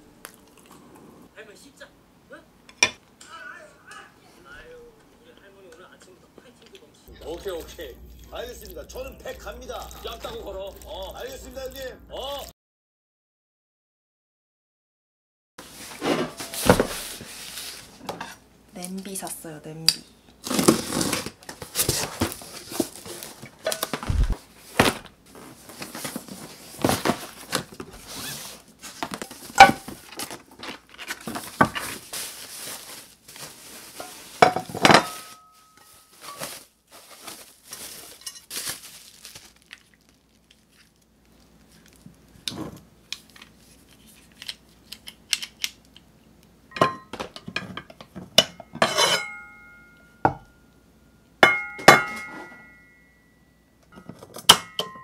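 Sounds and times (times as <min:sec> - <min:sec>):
plastic wrapping rustling: 0:07.1 - 0:12.4, 0:15.6 - 0:18.1, 0:20.4 - 0:45.2
cardboard box opening: 0:20.4 - 0:32.9
pans and glass lids clinking: 0:29.5 - 0:30.0, 0:33.9 - 0:36.6, 0:46.7 - 0:50.5, 0:51.4 - 0:53.0, 0:53.9 - 0:55.0
pans knocking: 0:34.0 - 0:35.4, 0:51.4 - 0:52.7.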